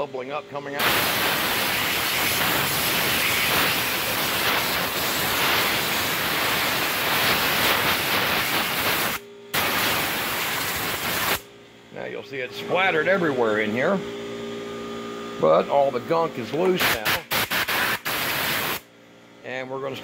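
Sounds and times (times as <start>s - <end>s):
compressed air blow gun hissing: 0.8s - 11.4s, 16.8s - 18.8s.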